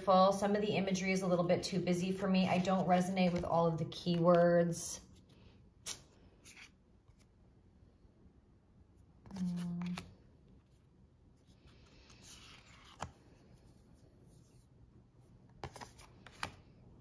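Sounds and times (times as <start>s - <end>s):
card sliding rustle: 5.2s - 7.3s, 11.4s - 14.7s, 15.5s - 16.8s
person humming: 9.3s - 10.1s.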